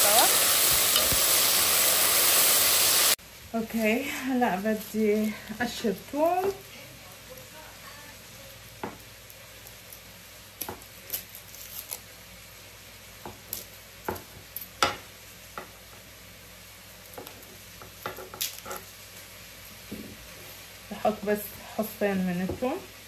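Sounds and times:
garlic skins crackling: 0.0 - 14.8, 16.8 - 19.8
steady low hiss: 0.0 - 23.0.

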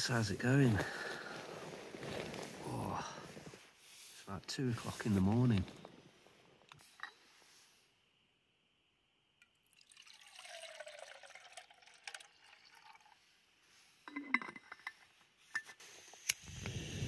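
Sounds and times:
liquid pouring into plastic bottle: 9.6 - 13.2.

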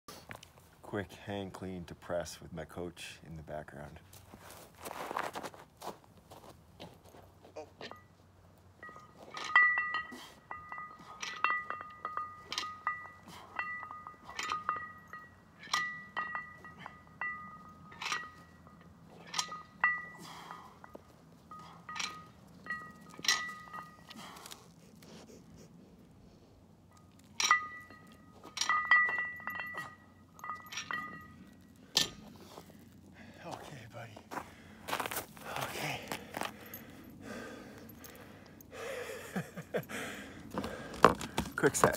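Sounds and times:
metal clinking and chiming: 7.8 - 25.0, 26.8 - 32.9, 34.9 - 40.6.

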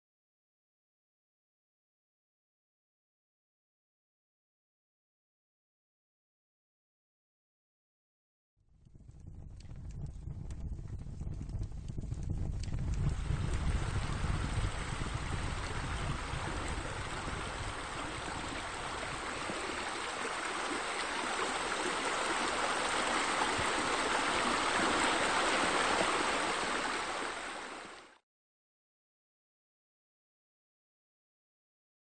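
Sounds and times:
flowing water rushing: 13.0 - 28.2.

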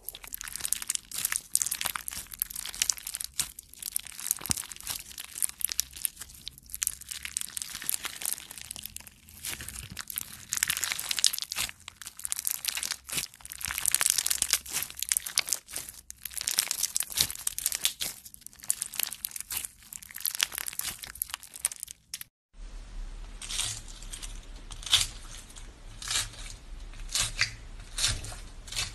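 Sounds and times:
slime crackling and clicking: 0.0 - 22.3.

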